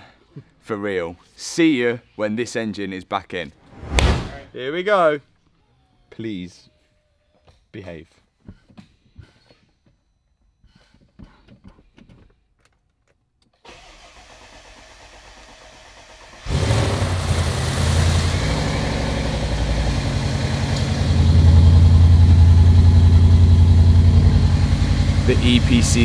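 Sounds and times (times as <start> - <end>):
car engine starting and idling: 13.7 - 26.0.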